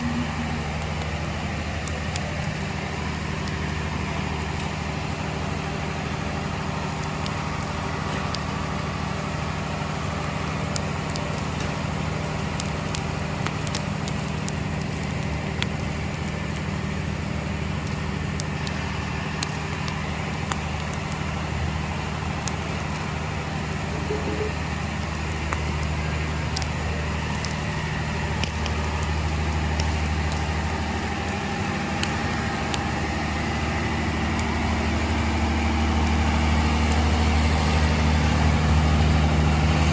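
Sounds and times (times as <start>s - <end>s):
low engine-like hum: 0.0s - 39.9s
wood fire crackling and popping: 0.0s - 39.9s.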